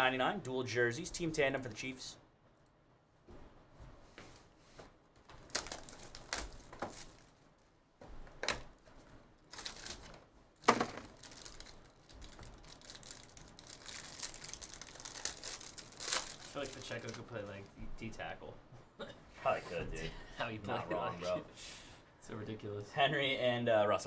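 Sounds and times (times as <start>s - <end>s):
plastic wrapper crinkling: 5.4s - 7.7s, 9.4s - 17.7s.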